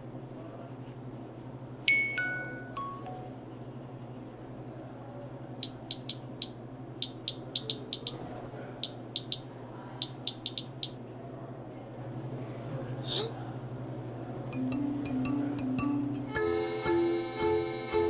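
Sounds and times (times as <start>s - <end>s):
steady low hum: 0.0s - 18.0s
typing clicks: 5.6s - 8.2s, 8.8s - 11.0s.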